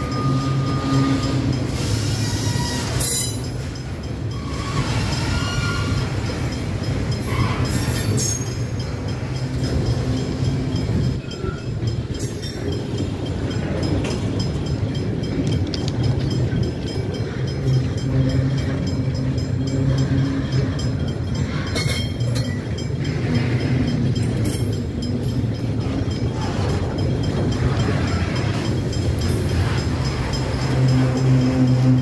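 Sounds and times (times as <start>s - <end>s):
freight wagons rolling on rails: 0.0s - 32.0s.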